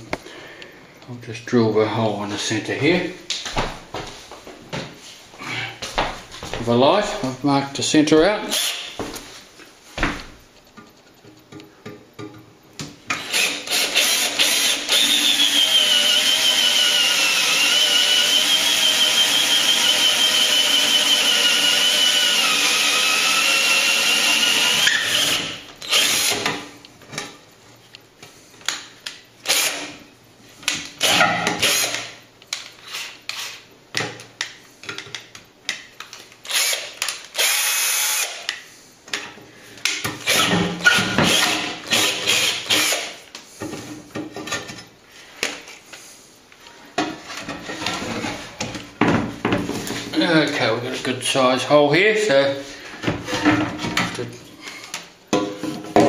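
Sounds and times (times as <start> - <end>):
cordless drill boring into plaster: 8.5 - 8.9, 13.2 - 26.5, 29.5 - 29.9, 31.0 - 32.1, 36.5 - 38.5, 40.2 - 43.2.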